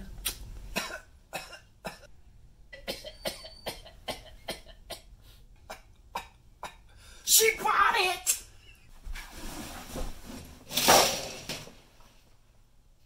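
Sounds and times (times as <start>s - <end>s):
man coughing: 0.8s - 2.1s, 2.8s - 6.9s.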